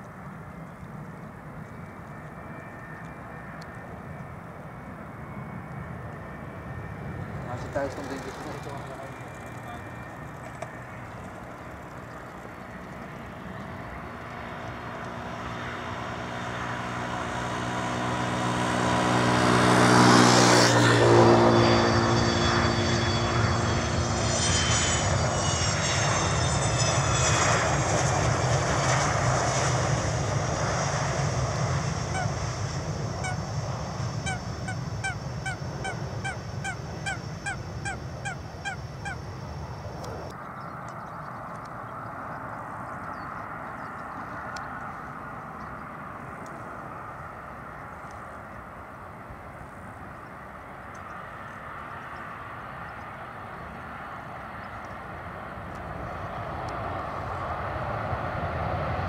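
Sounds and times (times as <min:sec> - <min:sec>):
jet engines of landing airliner: 0:00.0 - 0:59.0
geese honking: 0:32.0 - 0:32.5, 0:33.2 - 0:33.5, 0:34.2 - 0:39.3.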